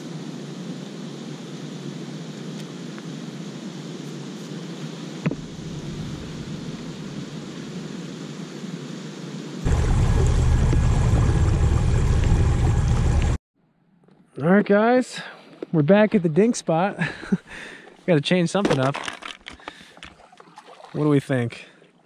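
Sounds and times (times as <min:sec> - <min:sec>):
wind: 0:00.0 - 0:22.0
water: 0:18.6 - 0:22.0.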